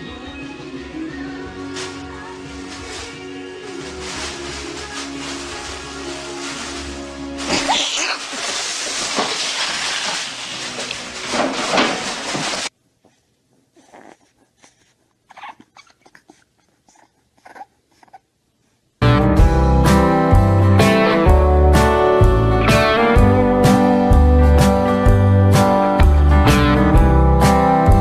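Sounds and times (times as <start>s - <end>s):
puppy sounds: 13.1s - 18.8s
slide guitar music: 19.0s - 28.0s.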